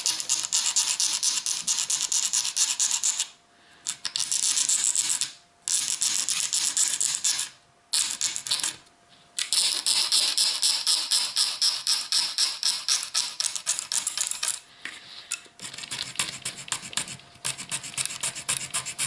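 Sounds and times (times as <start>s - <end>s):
file rasping on plastic: 0.0s - 3.3s, 9.5s - 14.6s, 15.6s - 19.0s.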